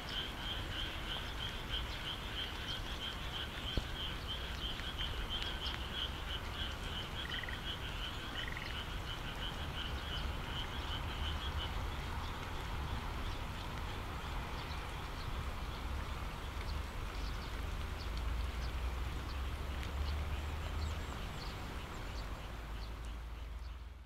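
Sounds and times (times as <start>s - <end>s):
frog croaking: 0.0s - 13.0s
rain hissing: 0.0s - 24.0s.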